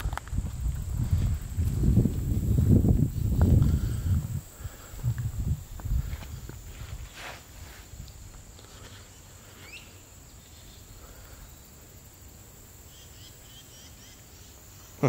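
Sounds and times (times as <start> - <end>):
footsteps on asphalt: 0.0 - 4.4, 5.0 - 7.9
crickets chirping: 0.0 - 15.0
faint bird chirps: 8.8 - 11.8, 12.8 - 15.0.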